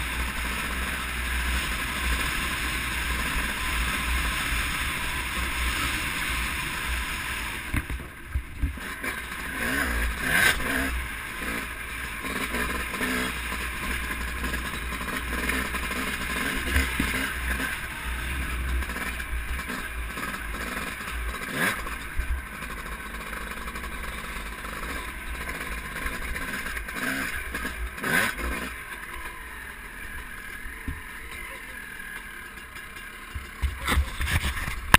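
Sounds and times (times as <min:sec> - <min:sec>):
dirt bike engine: 0:00.0 - 0:34.9.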